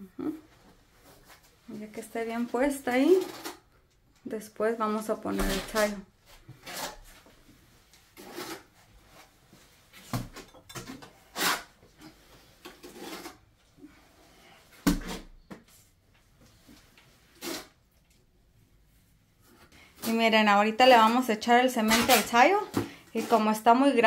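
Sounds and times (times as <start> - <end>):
trowel scraping mortar: 5.4 - 7.3, 8.1 - 8.9, 11.0 - 13.5, 17.3 - 17.8.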